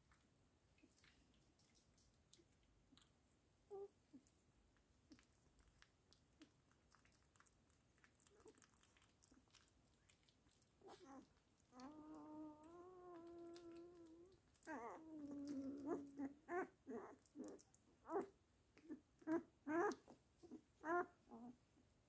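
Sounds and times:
faint small clicks: 0.1 - 3.2
puppy whining cries: 10.9 - 17.4, 18.9 - 21.6.

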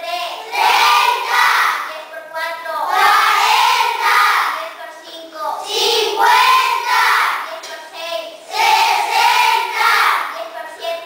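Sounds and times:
children chanting in unison: 0.0 - 11.0.

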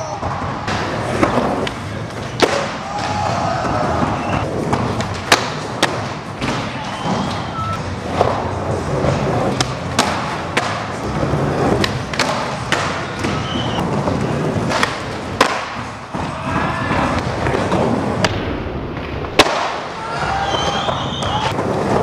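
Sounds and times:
skateboard clacks and thumps: 0.1 - 7.5, 8.1 - 22.0
skateboard wheels rolling on wood: 0.1 - 22.0.

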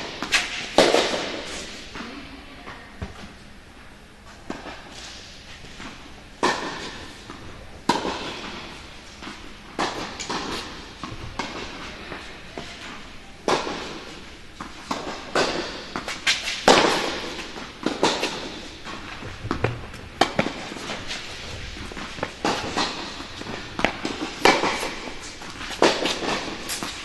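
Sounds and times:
rackets hitting tennis balls: 0.0 - 3.5, 4.3 - 27.0
tennis balls bouncing on court: 6.4 - 12.8, 13.4 - 27.0.

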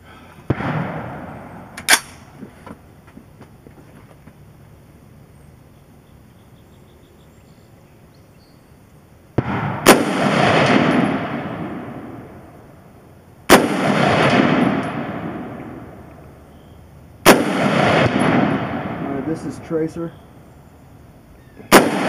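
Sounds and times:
rolling echo: 0.4 - 2.4, 9.4 - 12.9, 13.5 - 22.0
rifle shots: 0.5 - 2.3, 9.4 - 12.4, 13.5 - 16.0, 17.2 - 19.7, 21.7 - 22.0.

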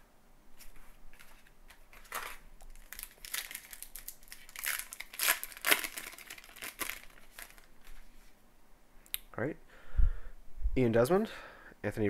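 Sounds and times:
wrapper crinkling and tearing: 1.2 - 8.0.

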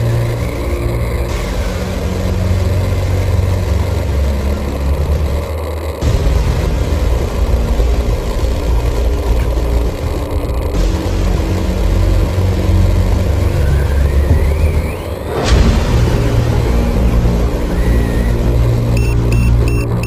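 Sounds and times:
rc truck electric motor running: 2.0 - 6.2, 7.7 - 15.3, 17.7 - 20.0.

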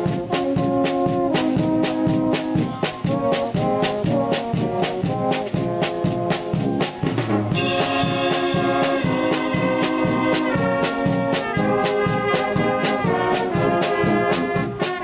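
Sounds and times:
brass band playing: 0.0 - 15.0
drum beat: 0.0 - 15.0
cymbal crash: 7.6 - 10.0.

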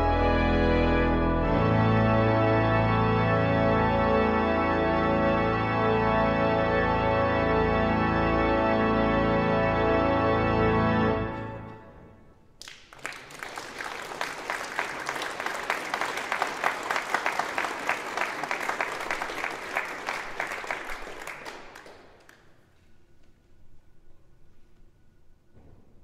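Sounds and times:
pipe organ chord: 0.0 - 12.5
audience applauding: 12.6 - 22.5.

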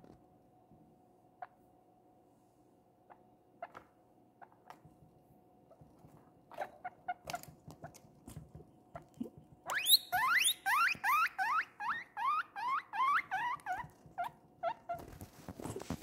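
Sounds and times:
guinea pig squeaks: 1.4 - 1.6, 3.0 - 4.8, 6.5 - 8.0, 9.0 - 16.0
guinea pig wheek: 1.4 - 1.6, 3.0 - 4.9, 5.7 - 16.0.

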